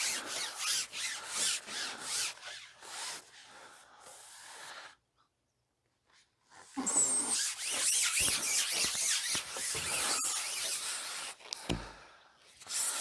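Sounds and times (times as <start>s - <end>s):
fishing pole sliding through hands: 0.0s - 4.7s, 6.6s - 11.7s.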